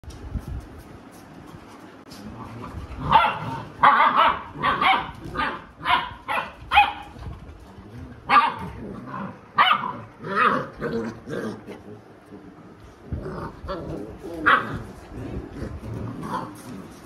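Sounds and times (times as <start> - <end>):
dogs barking: 3.0 - 7.1, 8.3 - 10.9.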